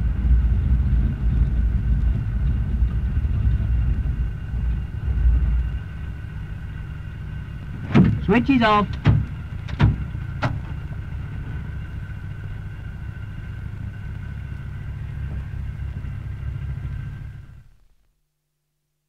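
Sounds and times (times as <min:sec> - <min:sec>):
aircraft engines low rumble: 0:00.0 - 0:18.1.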